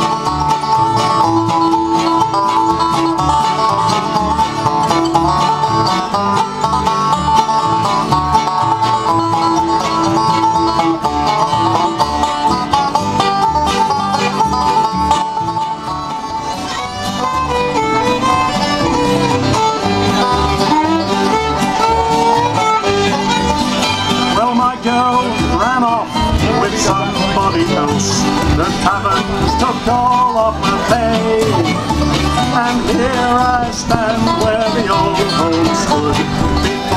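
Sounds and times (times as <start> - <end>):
acoustic guitar strumming: 0.0 - 36.9
banjo picking: 0.0 - 36.9
fiddle melody: 0.0 - 36.9
upright bass: 0.0 - 36.9.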